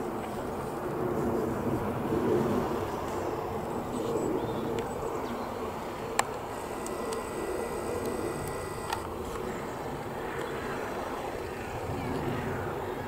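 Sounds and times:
sharp clicks: 6.2 - 9.2.

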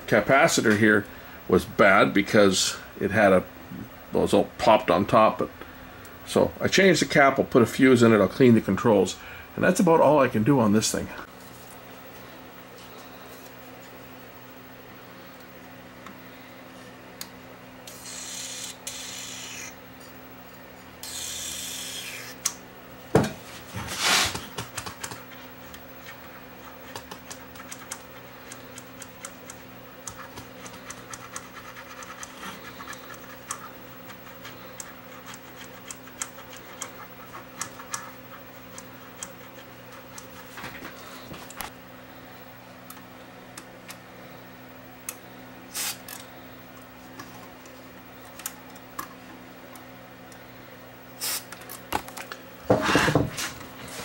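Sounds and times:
small clicks and scratches of controls: 24.8 - 40.7
aerosol spray hissing: 45.7 - 46.0, 51.2 - 51.4.

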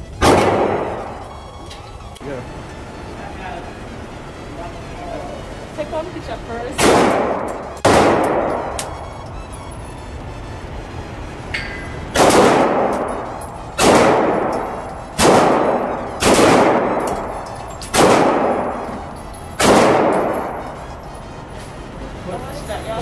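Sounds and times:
pistol shots echoing indoors: 0.1 - 1.4, 6.7 - 9.4, 11.5 - 21.0.

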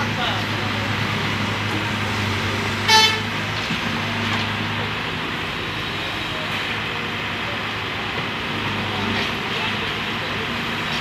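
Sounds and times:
diesel engines running: 0.0 - 11.0
loud horn toot: 2.8 - 3.4.

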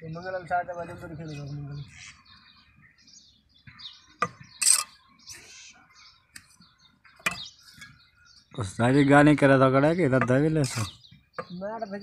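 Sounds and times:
birds chirping faintly: 0.0 - 12.0
trowel clinking on bricks: 4.2 - 5.0
trowel scraping mortar: 4.6 - 5.4, 10.6 - 11.0.

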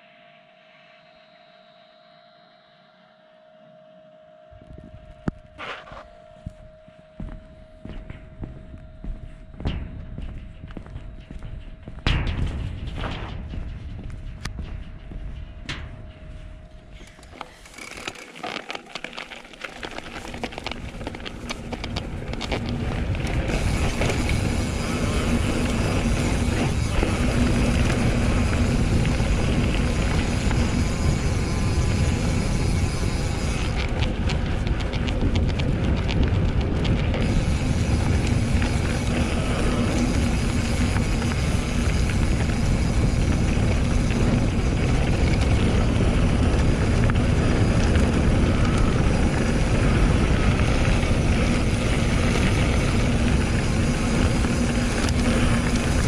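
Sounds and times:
wind on microphone: 4.5 - 17.6, 19.9 - 56.0
bike tyres on trail: 4.6 - 56.0.

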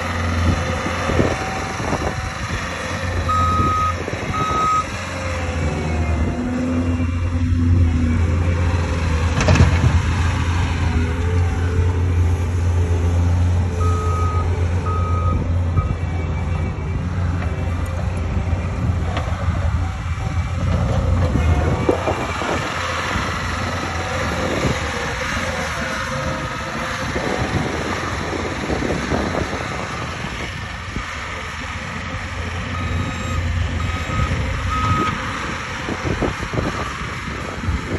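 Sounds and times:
diesel engine running: 0.0 - 37.9
reversing alarm beeps: 3.3 - 4.9, 13.8 - 16.6, 32.8 - 35.2.

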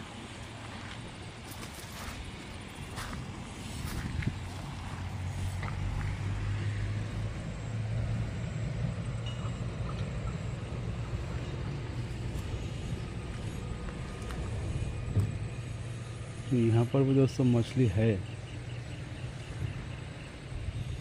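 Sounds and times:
road traffic rumble: 0.0 - 21.0.

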